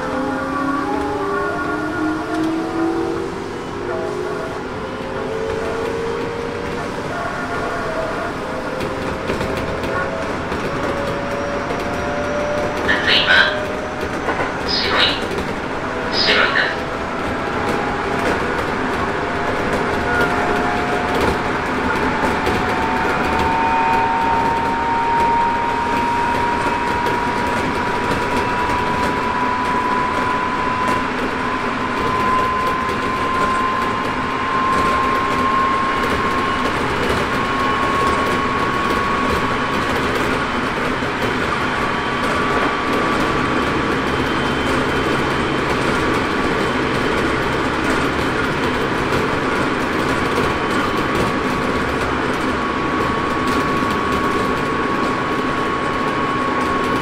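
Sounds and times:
train traction whine rising: 0.0s - 57.0s
train wheels on rails: 0.0s - 57.0s.

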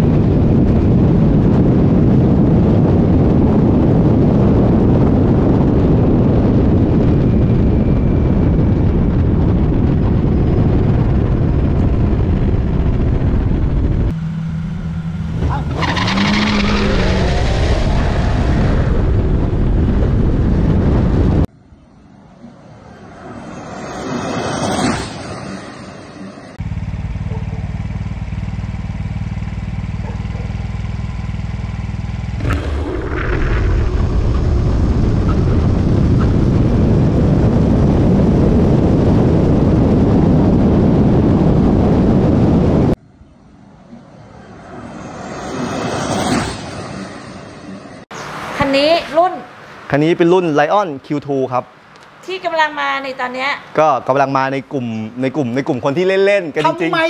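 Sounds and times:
wind and road noise: 0.0s - 57.0s
electric scooter passing: 6.8s - 20.8s, 21.9s - 38.3s, 43.0s - 50.0s.

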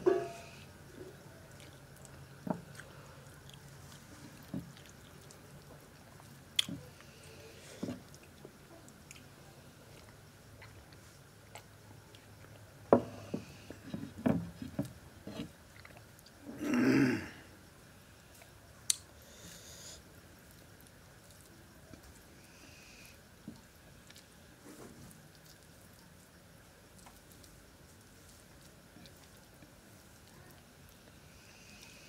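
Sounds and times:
mouth chewing: 0.2s - 12.8s.

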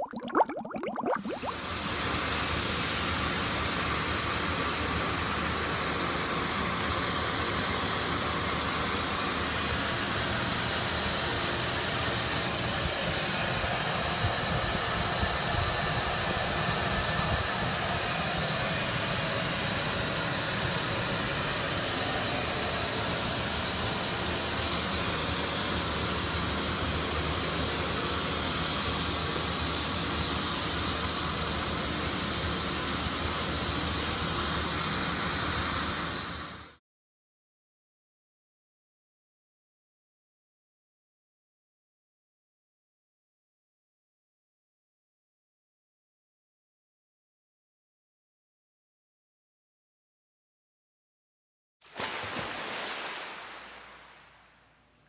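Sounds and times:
water hissing from tank: 0.0s - 4.2s, 52.0s - 54.3s.

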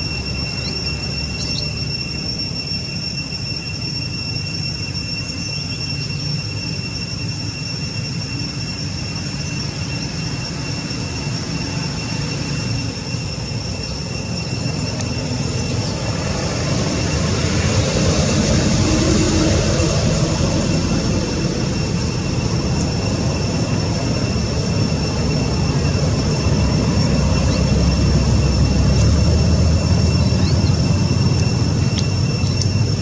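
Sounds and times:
high two-tone whine: 0.0s - 33.0s
low rumbling noise: 11.4s - 33.0s.

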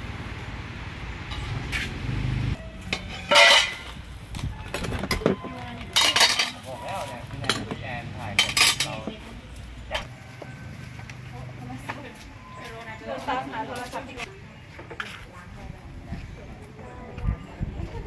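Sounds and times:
spoons clinking against bowls: 2.9s - 3.9s, 5.2s - 7.8s, 8.4s - 9.2s.

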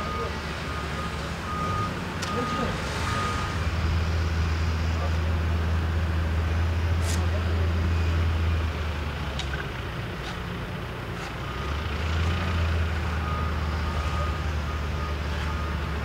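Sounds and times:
reversing alarm beeps: 0.0s - 3.6s, 13.1s - 16.0s
heavy vehicle engine humming: 0.0s - 16.0s.

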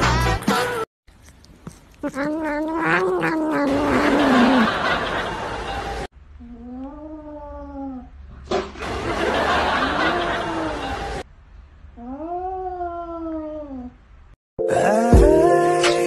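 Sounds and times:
cat meowing: 1.7s - 4.7s
cat yowling: 1.7s - 4.8s.

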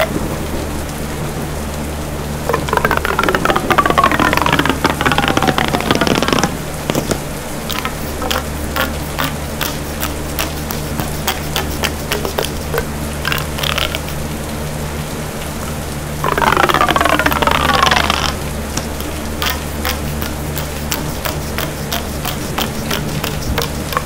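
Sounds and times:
steady low hum: 0.0s - 24.0s
crackling clicks: 2.5s - 14.2s, 15.4s - 24.0s
distorted creature screech: 2.5s - 14.2s, 16.2s - 18.4s.

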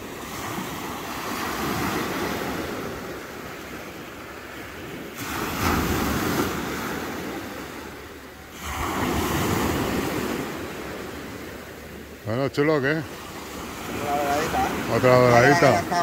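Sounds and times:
surf washing on shore: 0.0s - 16.0s
wave crashing: 5.0s - 11.8s, 12.6s - 16.0s.

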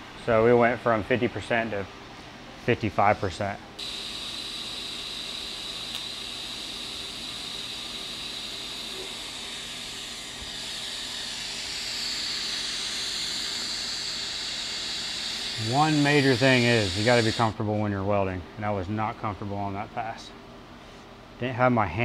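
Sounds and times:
welding arc hissing: 3.8s - 17.6s.

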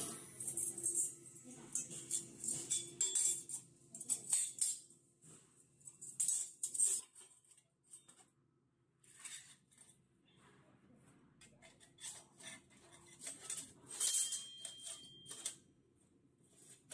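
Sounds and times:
steel plates clinking and scraping: 0.0s - 4.9s, 6.0s - 7.3s, 12.0s - 15.6s.

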